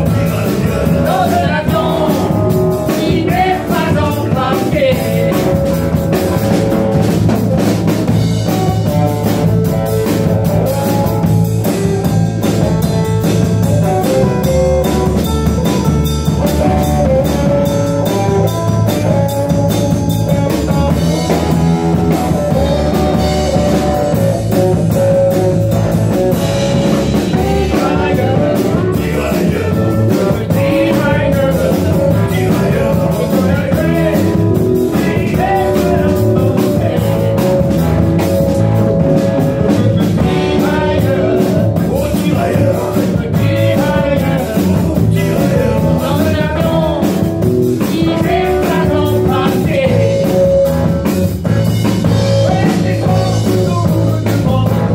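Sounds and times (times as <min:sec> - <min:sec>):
person singing: 0:00.0 - 0:06.9, 0:26.4 - 0:51.0, 0:52.0 - 0:54.9
drum kit: 0:00.0 - 0:54.9
electric bass: 0:00.0 - 0:54.9
electric guitar: 0:00.0 - 0:54.9.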